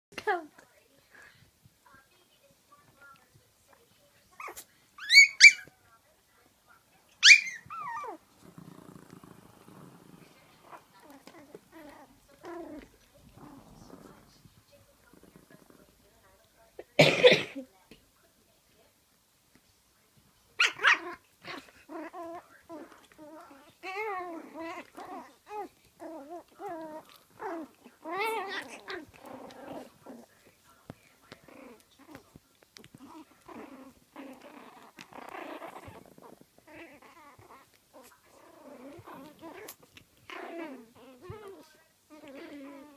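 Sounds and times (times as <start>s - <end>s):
dog yipping and grumbling: 4.4s - 5.7s, 7.2s - 14.4s, 20.6s - 30.3s, 32.8s - 42.9s
puppy play-growl: 4.4s - 5.7s, 7.1s - 16.2s, 20.6s - 42.9s
puppy whining: 4.4s - 5.7s, 7.2s - 14.4s, 20.6s - 30.3s, 32.8s - 42.9s
puppy yips: 4.4s - 5.7s, 7.2s - 8.2s, 20.6s - 21.1s.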